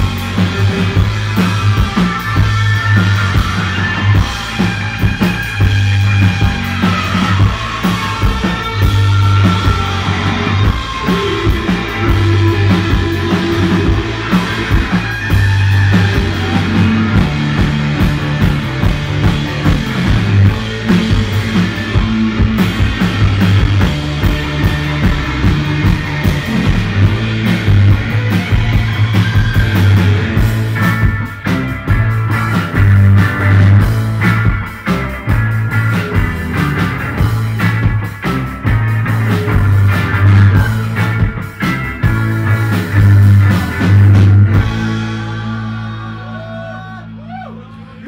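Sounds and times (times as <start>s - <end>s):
drum kit with cymbals: 0.0s - 46.5s
electric guitar: 0.0s - 47.6s
driving bass line: 0.0s - 48.0s.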